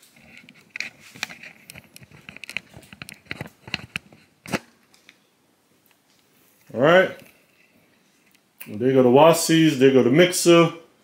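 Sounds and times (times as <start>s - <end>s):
rustling and crinkling: 0.0s - 8.8s.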